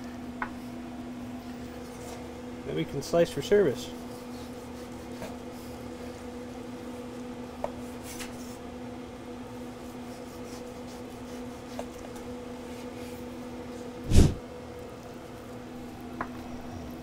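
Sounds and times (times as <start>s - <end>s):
knife sawing through meat: 4.0s - 5.6s, 9.8s - 11.8s.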